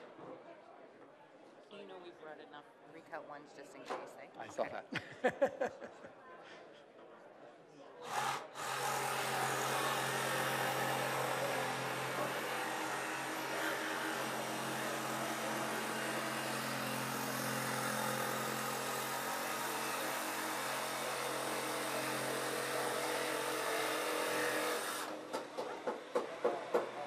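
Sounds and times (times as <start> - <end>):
power tool motor running: 8.0 - 25.4.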